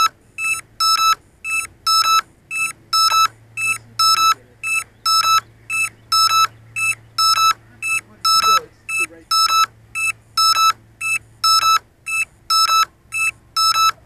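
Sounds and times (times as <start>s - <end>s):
electronic alarm beeps: 0.0s - 14.0s.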